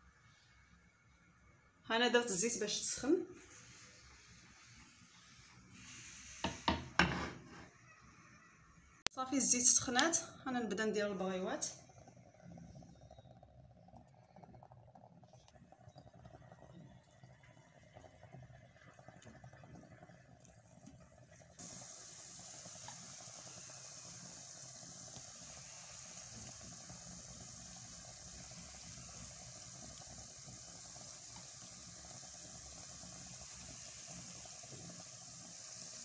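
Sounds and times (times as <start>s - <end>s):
oil sizzling while frying: 0.0s - 36.0s.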